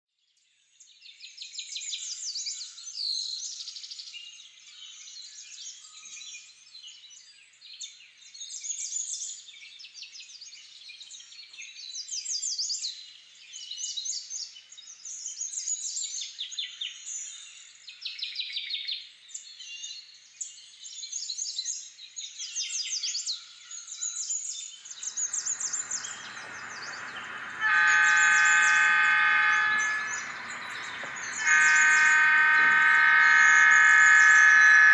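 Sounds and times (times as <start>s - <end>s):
birds chirping and singing: 24.8s - 34.9s
low locomotive engine rumble: 24.9s - 34.9s
locomotive air horn: 25.0s - 34.9s.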